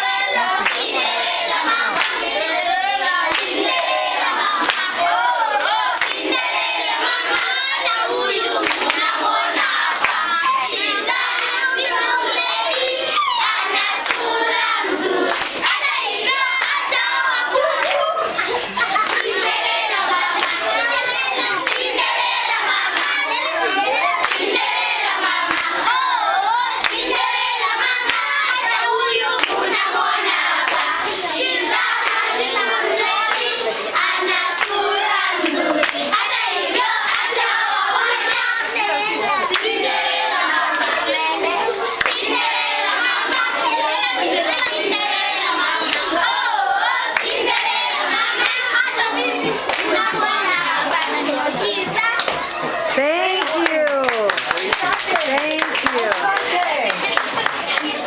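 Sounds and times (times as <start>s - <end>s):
hands clapping: 0.0s - 1.0s, 1.9s - 2.4s, 3.2s - 6.5s, 7.1s - 12.0s, 12.7s - 13.4s, 14.0s - 14.4s, 15.2s - 17.0s, 17.6s - 22.2s, 22.9s - 24.6s, 25.5s - 25.8s, 26.8s - 27.1s, 28.0s - 28.4s, 29.3s - 29.8s, 30.6s - 31.0s, 32.0s - 32.3s, 33.2s - 33.5s, 34.6s - 34.8s, 35.4s - 36.3s, 37.0s - 37.4s, 38.2s - 39.8s, 40.6s - 42.3s, 44.5s - 44.8s, 45.8s - 46.2s, 47.2s - 58.0s
children singing together: 0.0s - 53.0s, 54.3s - 58.0s.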